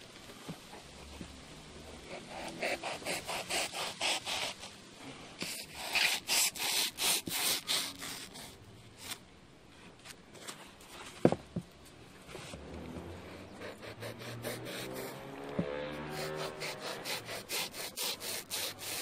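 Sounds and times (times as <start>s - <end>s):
knife sawing through foam: 2.0s - 4.7s, 5.4s - 9.2s, 13.3s - 15.3s, 15.9s - 19.0s.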